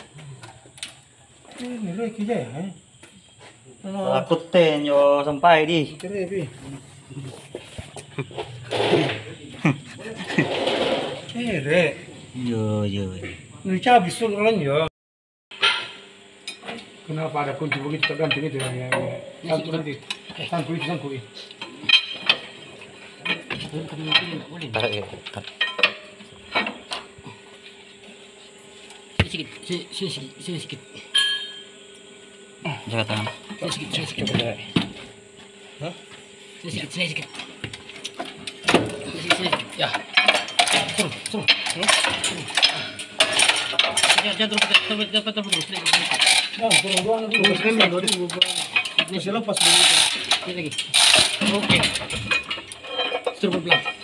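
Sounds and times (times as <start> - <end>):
metal tools clinking and knocking: 17.6 - 27.1, 31.1 - 31.7, 33.0 - 35.0, 37.2 - 54.0.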